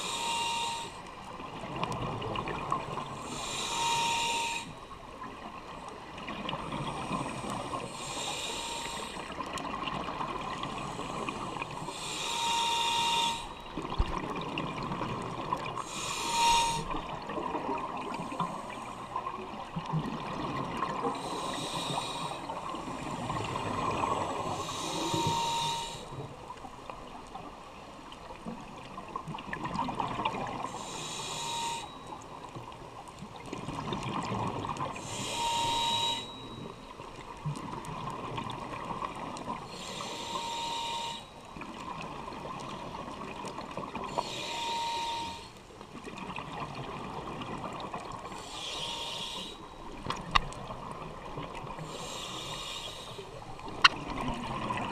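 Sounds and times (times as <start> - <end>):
hissing regulator inhale: 0.0 - 1.2, 3.0 - 4.9, 6.8 - 9.5, 10.6 - 13.6, 15.8 - 17.1, 18.1 - 19.3, 21.0 - 26.3, 30.7 - 32.2, 35.0 - 36.8, 39.6 - 41.4, 44.1 - 45.6, 48.3 - 49.9, 51.8 - 53.6.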